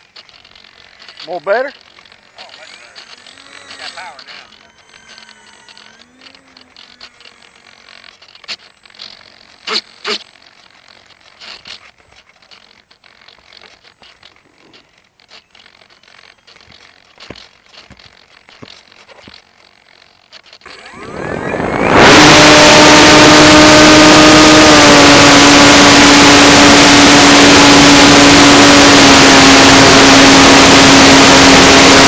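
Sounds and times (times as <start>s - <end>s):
handling scrapes and rustles: 0.0s - 20.7s.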